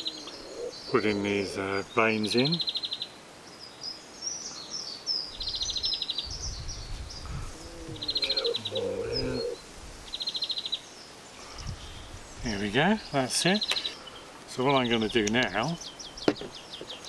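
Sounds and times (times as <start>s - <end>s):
songbirds chirping: 0.0s - 17.0s
rapid bird trill: 5.4s - 10.8s.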